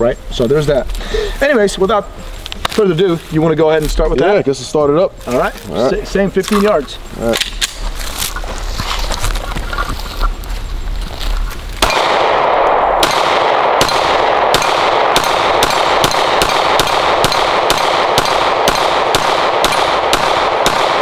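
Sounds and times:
rapid pistol shots: 11.8s - 21.0s.

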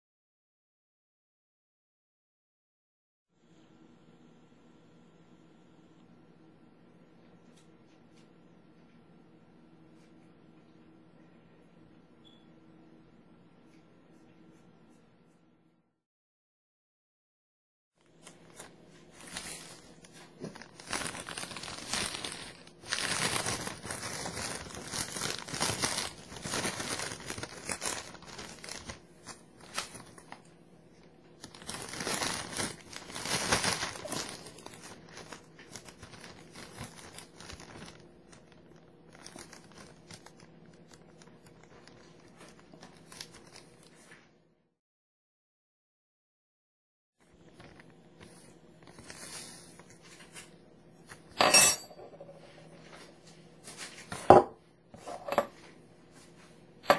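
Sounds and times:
plastic bag crinkling: 18.1s - 30.5s, 31.4s - 44.0s, 47.4s - 50.4s.

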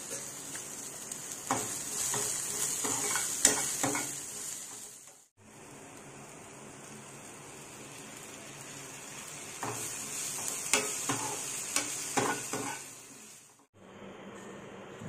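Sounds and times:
vegetables sizzling in oil: 0.0s - 13.7s
spatula scraping a pan: 1.5s - 5.0s, 9.6s - 12.9s.

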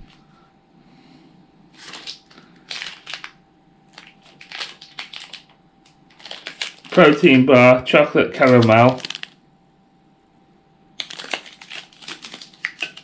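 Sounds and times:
packaging rustling and crinkling: 1.8s - 9.4s, 11.0s - 13.0s.

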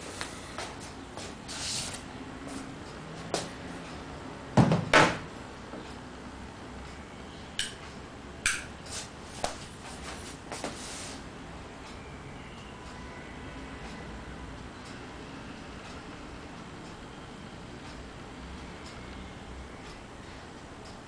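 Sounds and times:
heavy handling knocks: 4.6s - 5.2s.

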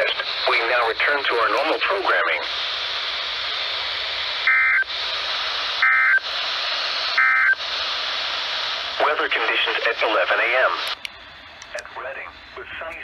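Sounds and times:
radio static hiss: 0.0s - 13.0s
two-tone digital data bursts: 5.8s - 6.2s, 7.2s - 7.6s.

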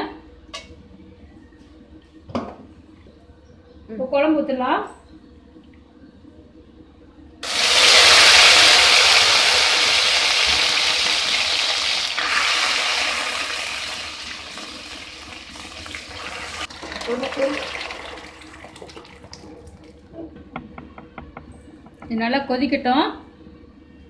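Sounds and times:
liquid sizzling in hot oil: 7.4s - 19.3s.

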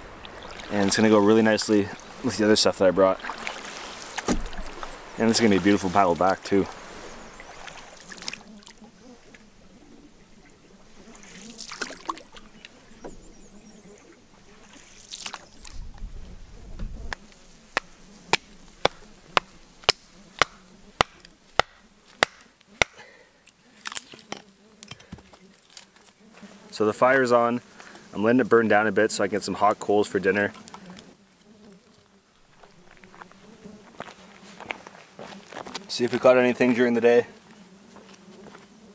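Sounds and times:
kindling being chopped: 17.8s - 23.0s.

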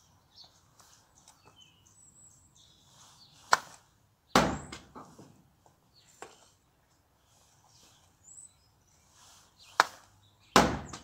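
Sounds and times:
faint birdsong: 0.0s - 11.0s
ball thudding into target: 4.4s - 5.2s.

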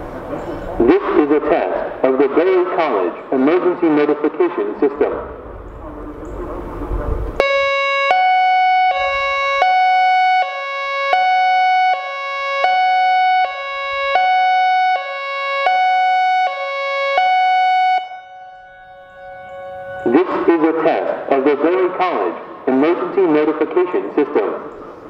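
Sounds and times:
two-tone warning siren: 7.4s - 22.7s.

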